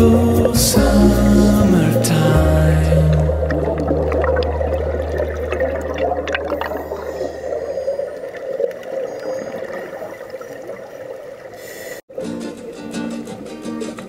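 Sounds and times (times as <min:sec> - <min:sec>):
low tone: 0:00.0 - 0:08.4
underwater bubbling and gurgling: 0:00.3 - 0:12.0
crackling bubble clicks: 0:03.1 - 0:11.5.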